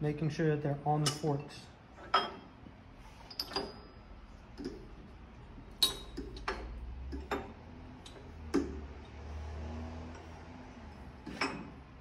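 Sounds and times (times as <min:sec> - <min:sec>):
metal bars clicking and clinking: 0:03.3 - 0:04.0, 0:05.7 - 0:08.8.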